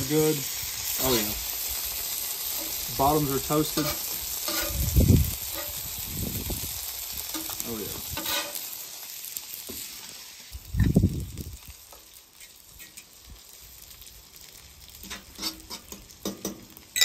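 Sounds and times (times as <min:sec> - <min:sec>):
eggs sizzling on a griddle: 0:00.0 - 0:17.0
fork clicking and scraping: 0:03.8 - 0:04.8, 0:15.0 - 0:16.0.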